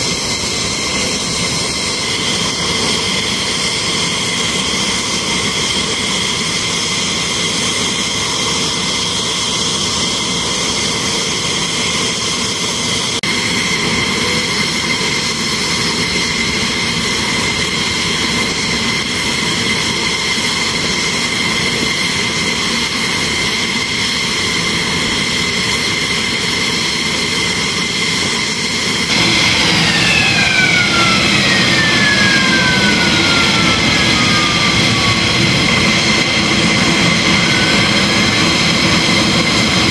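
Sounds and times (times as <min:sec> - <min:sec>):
jet engines whining: 0:00.0 - 0:39.9
whine falling in pitch: 0:29.1 - 0:39.1.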